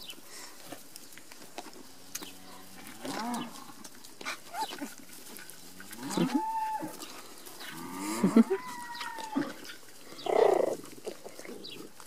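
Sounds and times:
cow mooing: 0:02.1 - 0:03.6, 0:05.8 - 0:07.0, 0:07.6 - 0:09.5.

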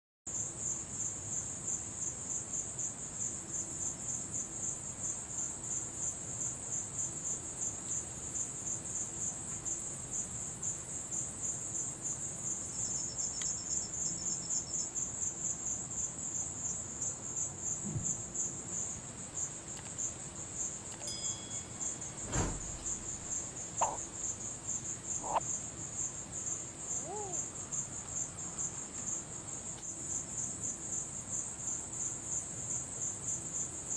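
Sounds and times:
night insects chirping: 0:00.3 - 0:33.9
sharp knock: 0:22.2 - 0:23.2
short faint calls: 0:23.8 - 0:24.0, 0:25.2 - 0:25.4, 0:26.9 - 0:27.5.

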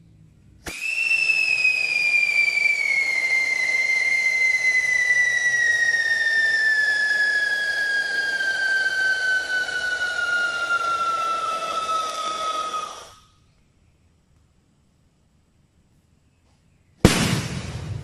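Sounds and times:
firework rushing hiss: 0:00.6 - 0:13.3
firework whistling: 0:00.6 - 0:13.4.

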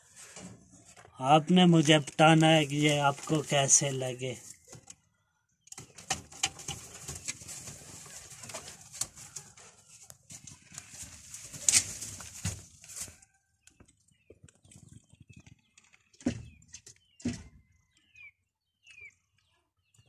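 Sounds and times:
rustling: 0:06.0 - 0:13.2.

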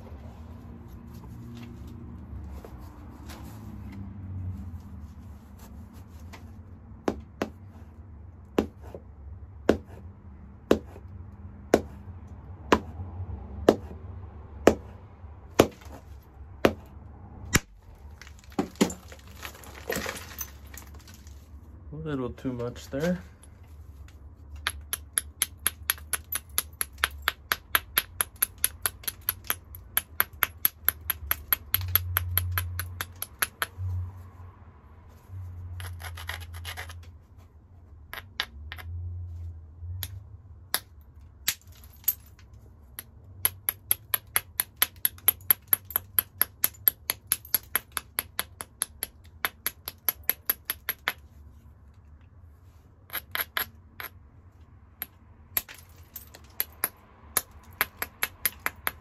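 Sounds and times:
hammerstone clicking on stone: 0:24.6 - 0:33.7, 0:43.0 - 0:51.2, 0:53.1 - 0:54.2, 0:55.0 - 0:59.0
stone grinding: 0:35.8 - 0:37.0, 0:53.1 - 0:54.2.

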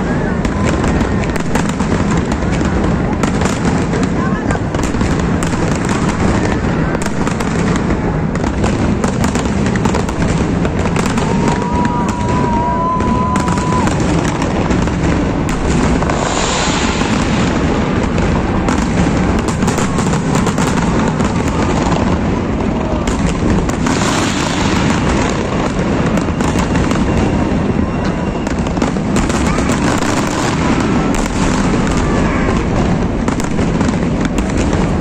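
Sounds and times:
fireworks bursts and crackling: 0:00.0 - 0:35.0
high firework whistle: 0:11.0 - 0:22.1, 0:23.8 - 0:32.8.

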